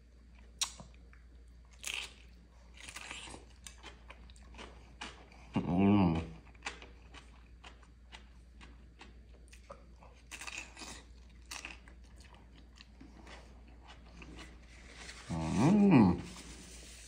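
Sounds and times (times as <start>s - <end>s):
crunchy food being chewed: 0.2s - 15.8s
closed-mouth mmm hum: 5.1s - 6.6s, 13.3s - 16.8s.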